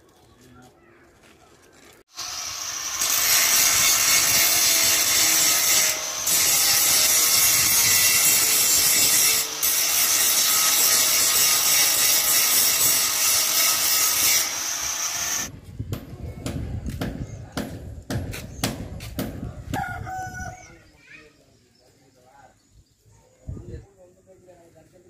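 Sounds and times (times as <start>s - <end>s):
angle grinder grinding metal: 2.1s - 15.5s.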